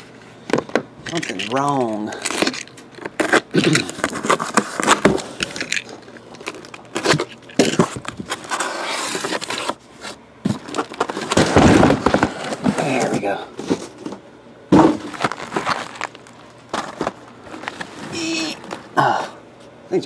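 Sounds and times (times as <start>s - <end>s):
cardboard box scraping and rustling: 3.1s - 5.4s, 6.9s - 14.1s, 14.8s - 18.8s.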